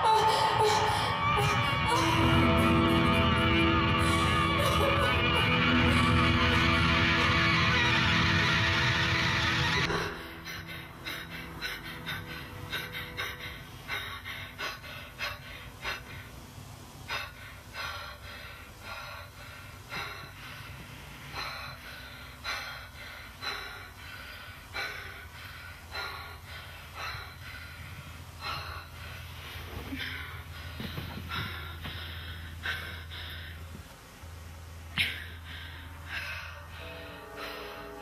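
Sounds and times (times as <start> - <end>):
low steady hum: 0.0 - 38.0
woman gasping breaths: 9.3 - 34.0, 34.8 - 38.0.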